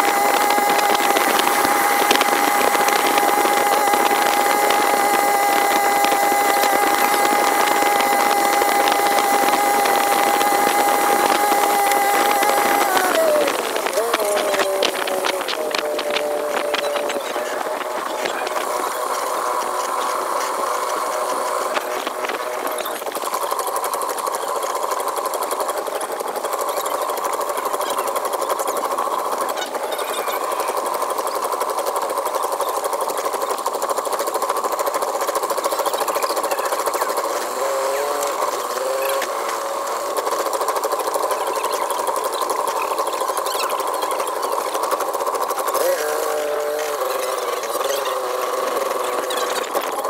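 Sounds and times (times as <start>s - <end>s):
sped-up boat engine: 0.0s - 50.0s.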